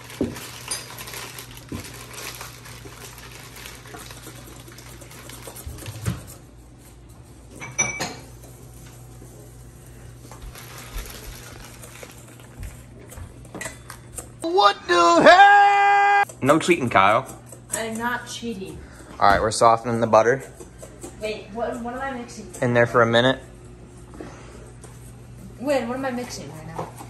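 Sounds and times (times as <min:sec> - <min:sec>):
whisk scraping a metal bowl: 0:03.6 - 0:06.6, 0:16.2 - 0:23.5.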